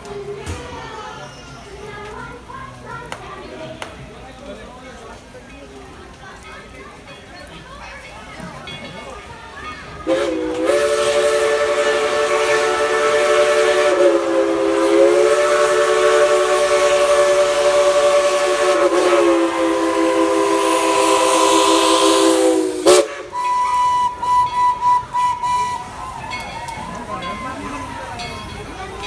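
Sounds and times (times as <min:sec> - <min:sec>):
burst of steam: 0:10.0 - 0:26.2
steam locomotive whistle: 0:10.0 - 0:28.0.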